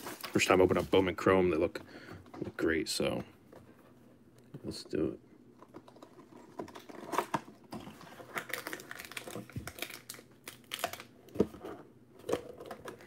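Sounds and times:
paper crinkling and rustling: 0.0 - 1.2, 5.8 - 13.0.

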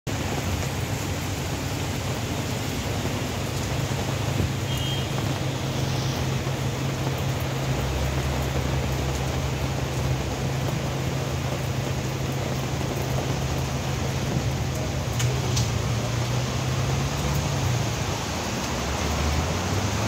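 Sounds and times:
tyres hissing on wet road: 0.1 - 20.0
car engines running: 5.2 - 20.0.

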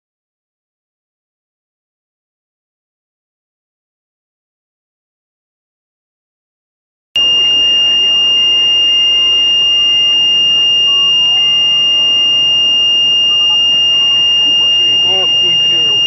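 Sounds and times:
high-pitched electronic beep: 7.2 - 16.0.

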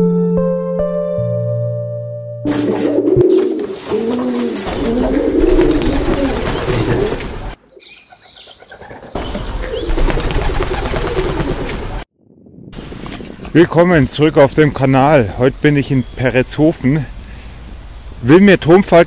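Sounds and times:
pigeons cooing: 2.5 - 12.0.

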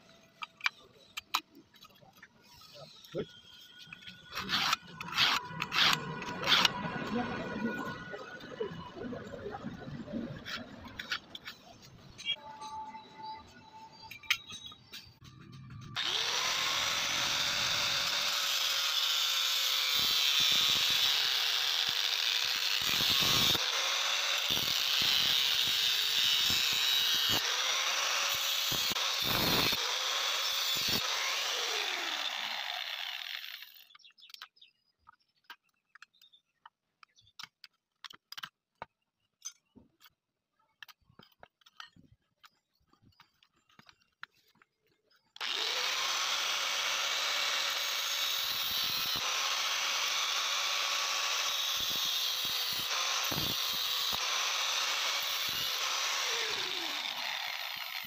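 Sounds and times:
power tool grinding saw blade: 0.4 - 8.8, 13.9 - 34.3, 45.3 - 58.0.

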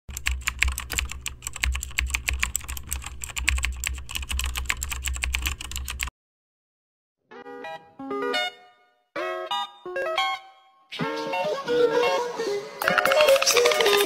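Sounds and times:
keyboard typing clicks: 0.1 - 6.1, 12.8 - 14.0.

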